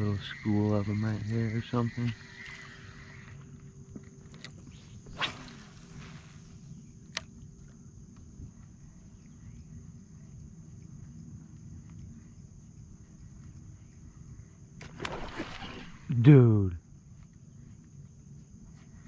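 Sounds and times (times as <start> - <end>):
fishing rod swish: 5.0 - 6.6, 14.8 - 16.1.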